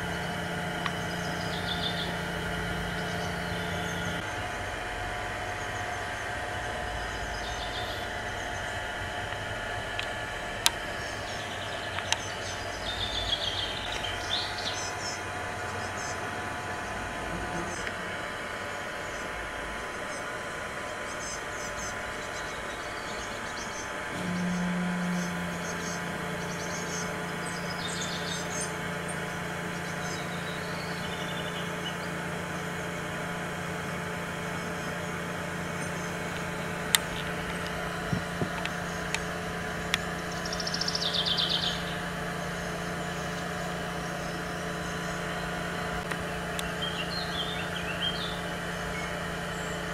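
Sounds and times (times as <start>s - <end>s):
low machine hum: 0.0s - 49.9s
bird chirps: 0.9s - 2.2s, 21.1s - 28.8s, 40.3s - 42.0s
bird trill: 1.0s - 2.2s, 21.1s - 29.2s, 40.2s - 43.4s.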